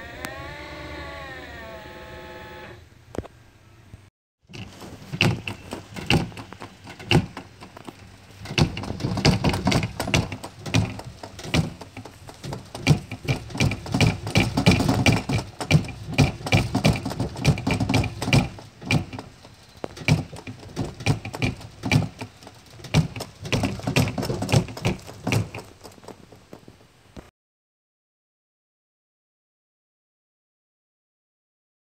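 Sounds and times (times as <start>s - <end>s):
trunk lid rattling and banging: 4.5s - 26.6s.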